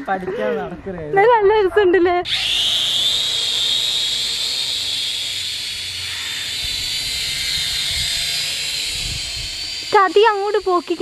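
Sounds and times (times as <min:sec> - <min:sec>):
toy drone motors whining: 0:02.2 - 0:11.0.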